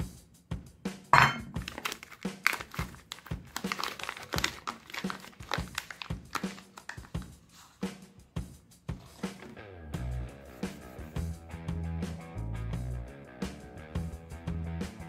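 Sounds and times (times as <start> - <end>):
background music with drum beat: 0.0 - 15.0
plastic wrapper crinkling: 1.5 - 7.3.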